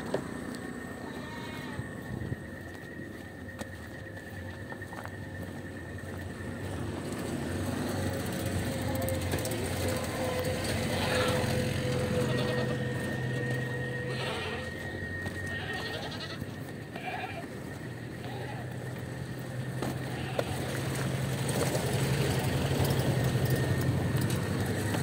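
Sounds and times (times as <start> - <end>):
livestock market din: 0.0 - 25.0
animals bleating: 0.6 - 2.1, 8.2 - 19.2, 19.8 - 21.0.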